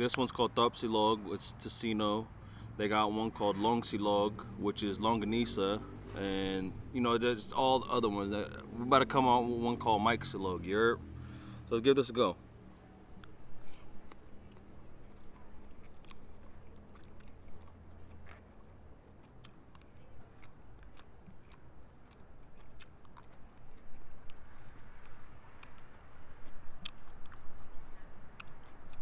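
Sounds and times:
person chewing food: 12.7s - 29.0s.

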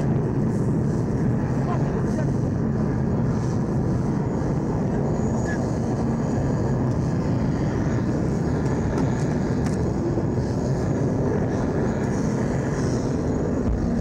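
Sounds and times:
low rumble of vehicle engines: 0.0s - 14.0s.

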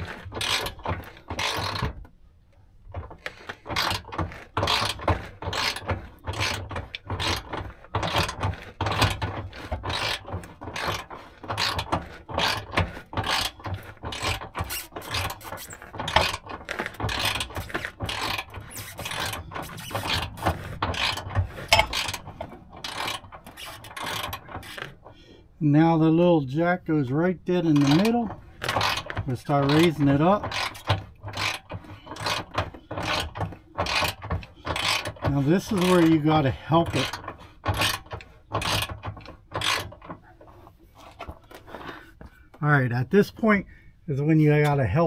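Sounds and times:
hand winch clicking: 0.0s - 2.2s, 2.8s - 25.4s, 27.6s - 42.7s.

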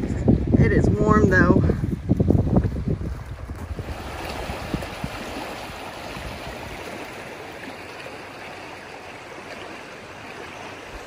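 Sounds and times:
river flowing over rocks: 3.8s - 11.0s.

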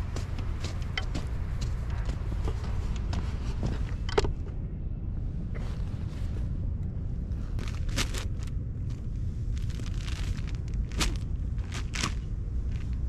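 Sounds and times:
wind rumbling on microphone: 0.0s - 13.0s
plastic sack rustling: 7.4s - 13.0s.

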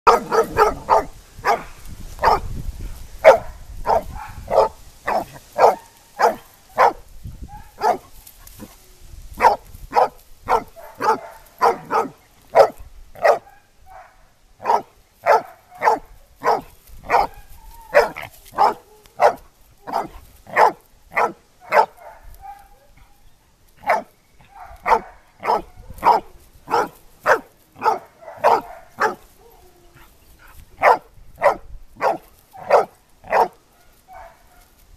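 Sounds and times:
dog barking sharply: 0.1s - 1.6s, 9.4s - 17.3s, 18.0s - 22.6s, 24.6s - 29.2s, 30.8s - 33.5s.

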